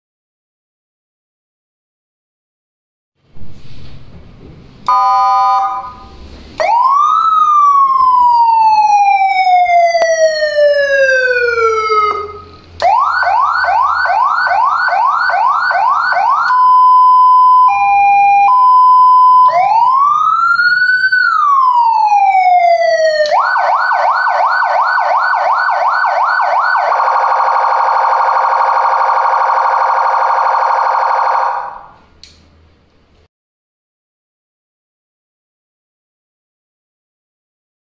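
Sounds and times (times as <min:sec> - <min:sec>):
electronic siren wailing and yelping: 0:04.9 - 0:32.0.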